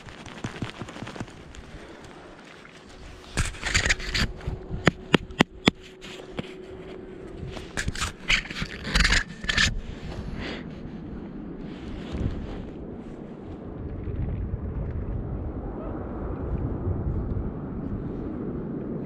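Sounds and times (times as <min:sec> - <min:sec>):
snowboard crunching in snow: 0:00.0 - 0:12.8.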